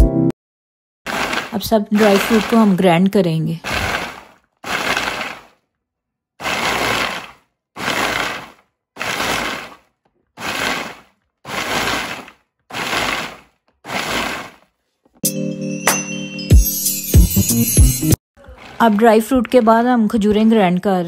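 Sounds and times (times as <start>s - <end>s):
electric food chopper grinding: 1.1s - 2.7s, 3.6s - 5.5s, 6.4s - 9.8s, 10.4s - 14.6s.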